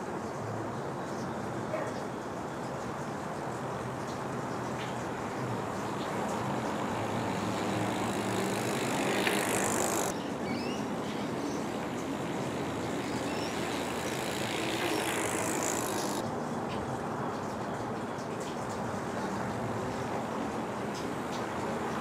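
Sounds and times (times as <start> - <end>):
outdoor street noise: 0.0 - 22.0
bicycle tyres and freewheel: 5.1 - 10.2, 11.2 - 16.2
bird chirps: 12.9 - 15.0.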